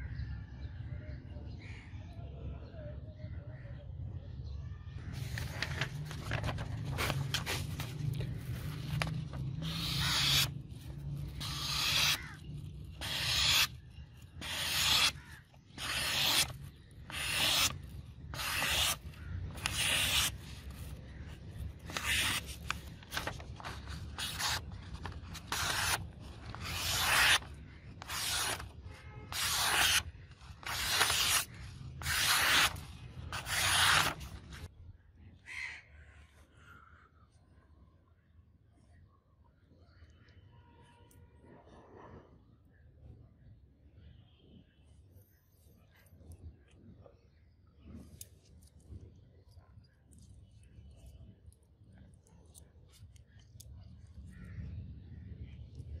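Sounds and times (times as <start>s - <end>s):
paper rustling: 5.1s - 13.7s, 14.4s - 34.7s
knife slicing paper: 5.2s - 34.7s.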